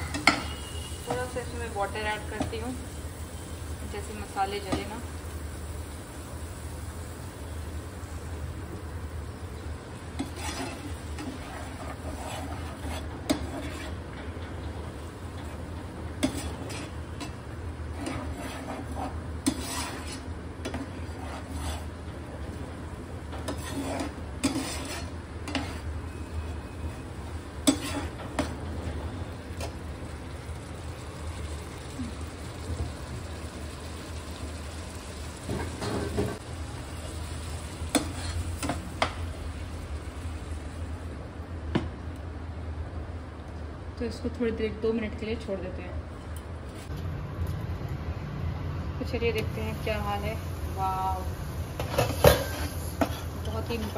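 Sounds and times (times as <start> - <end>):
faint sizzle: 0.0 - 41.5, 48.4 - 53.9
spoon scraping frying pan: 10.1 - 14.4, 15.3 - 22.1, 23.3 - 26.6, 27.6 - 28.6, 37.9 - 39.1.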